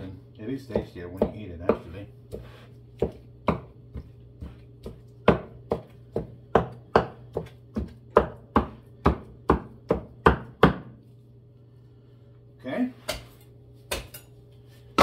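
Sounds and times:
knife chopping chicken: 0.7s - 10.9s.

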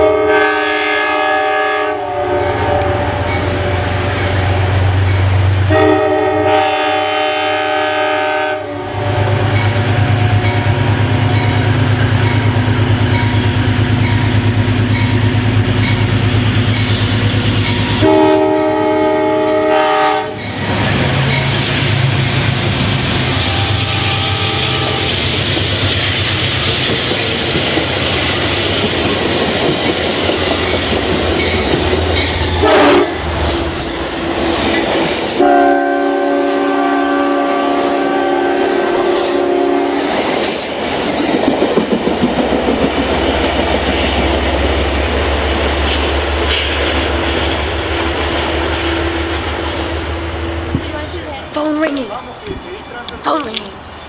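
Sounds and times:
train horn blasts: 0.0s - 5.0s, 5.6s - 11.7s, 17.6s - 22.1s, 23.0s - 25.4s, 31.4s - 34.4s, 35.3s - 40.4s
low steady train rumble: 0.0s - 54.0s
train wheels rushing on rails: 0.0s - 54.0s.

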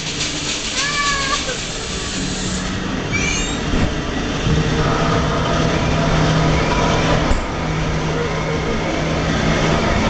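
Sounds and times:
ride car rumbling on track: 0.0s - 10.0s
high rising squeal: 3.0s - 10.0s
steady low hum: 3.7s - 10.0s.

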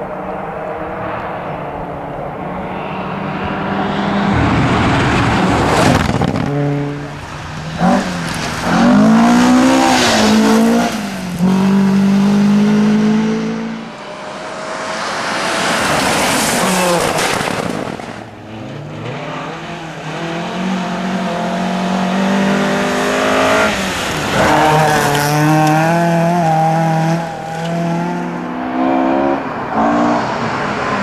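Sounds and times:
rally car engines at high revs: 0.0s - 31.0s
car passing close: 0.4s - 31.0s.

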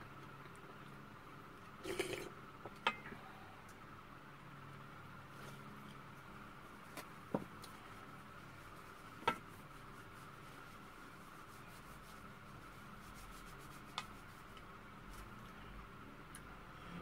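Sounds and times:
egg shell rubbing and scratching: 6.7s - 14.6s.

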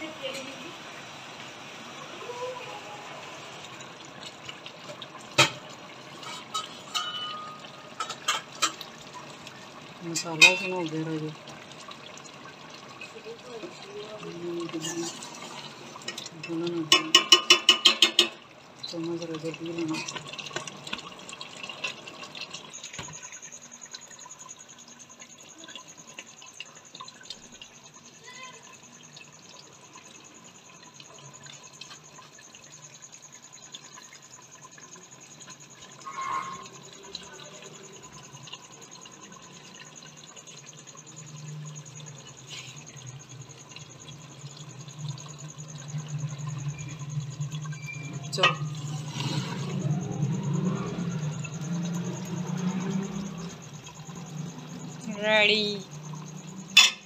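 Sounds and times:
curry simmering in a pot: 0.0s - 57.0s
ladle clinking: 3.6s - 9.4s, 10.0s - 11.2s, 12.8s - 28.6s, 35.4s - 50.2s, 55.4s - 57.0s
steel ladle scraping a pot: 6.1s - 8.3s, 36.0s - 36.8s.

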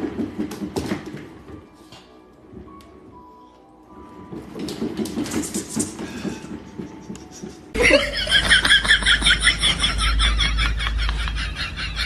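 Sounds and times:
exercise wheel rumbling and knocking: 0.0s - 1.7s, 4.0s - 12.0s
person giggling: 6.5s - 12.0s
low hum: 8.5s - 12.0s.

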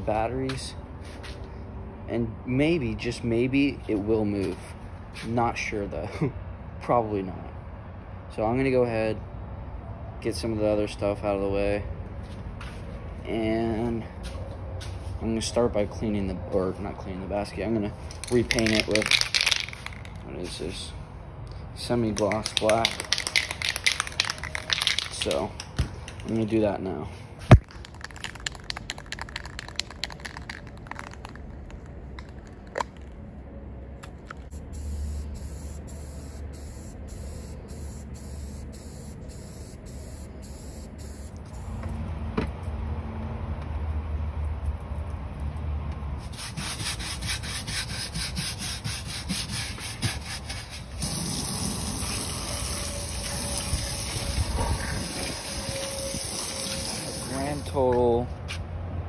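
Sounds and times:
water spraying on rubber mat: 46.2s - 57.6s.

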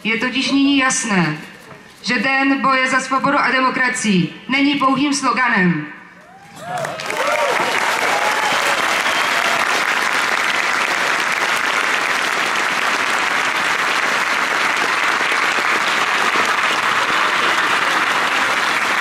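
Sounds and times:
crowd applauding: 6.2s - 19.0s.

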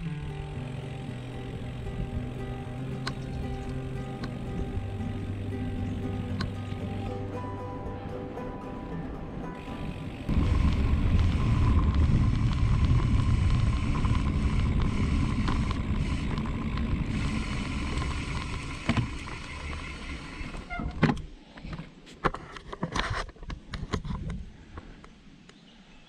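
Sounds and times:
wind rumbling on microphone: 9.5s - 21.2s, 23.4s - 25.2s.

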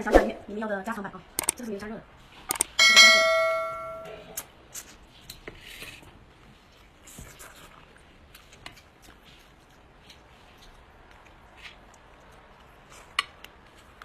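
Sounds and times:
bell-like chime: 2.8s - 4.2s
wet eating sounds: 4.3s - 14.0s.

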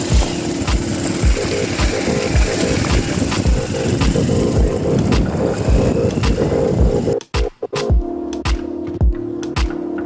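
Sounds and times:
held synth chord: 0.0s - 7.2s
electronic music: 0.0s - 10.0s
kick drum: 2.4s - 9.8s.

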